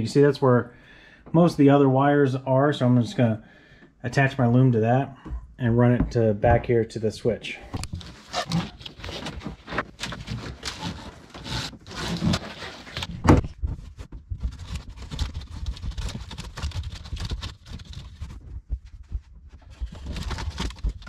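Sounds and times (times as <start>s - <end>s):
hands rustling and scraping cables: 7.7s - 21.0s.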